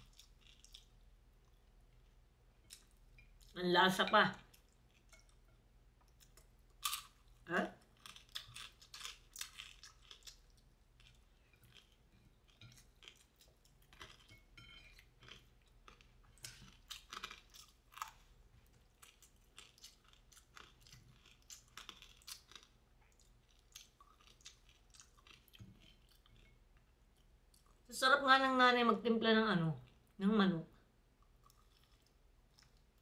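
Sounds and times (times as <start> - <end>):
crunchy chewing: 6.1 - 14.3, 15.0 - 26.4.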